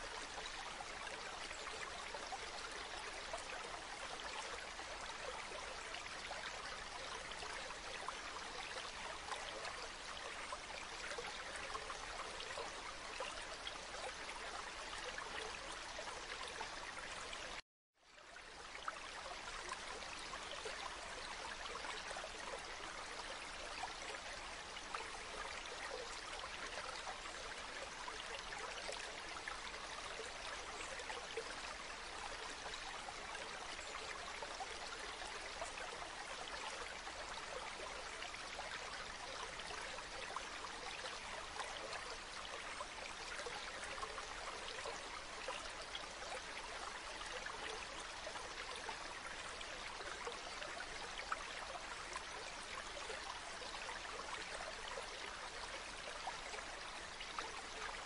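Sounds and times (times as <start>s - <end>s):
stream running over pebbles: 18.2s - 58.0s.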